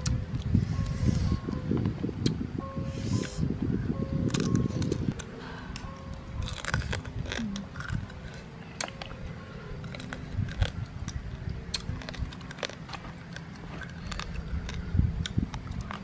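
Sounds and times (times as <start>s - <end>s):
chewing and smacking: 4.2s - 16.0s
shells cracking apart: 9.8s - 14.9s.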